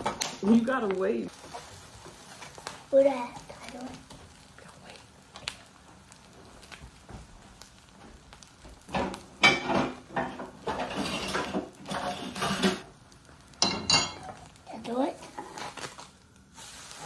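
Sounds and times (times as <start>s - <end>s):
spatula clinking and scraping a pan: 8.9s - 12.8s, 13.6s - 14.5s.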